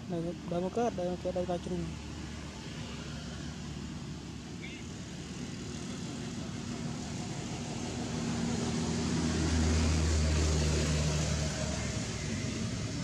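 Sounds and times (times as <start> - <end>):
motor vehicle passing by: 5.1 - 13.0.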